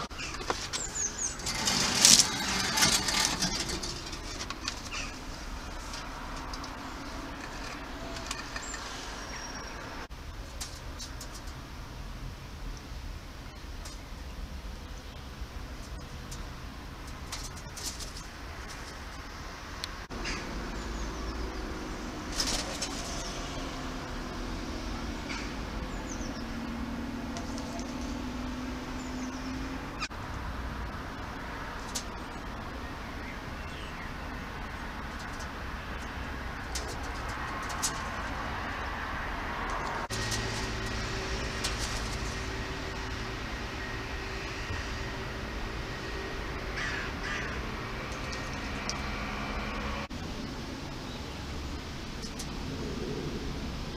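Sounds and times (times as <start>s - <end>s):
rustling and knocking: 0.0s - 9.0s
outdoor background: 0.0s - 53.9s.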